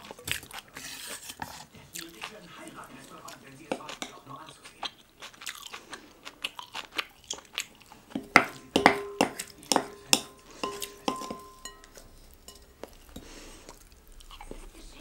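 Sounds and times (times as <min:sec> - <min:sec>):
close-up chewing: 0:00.0 - 0:15.0
spoon knocking and scraping in bowl: 0:03.7 - 0:04.3, 0:08.1 - 0:13.3.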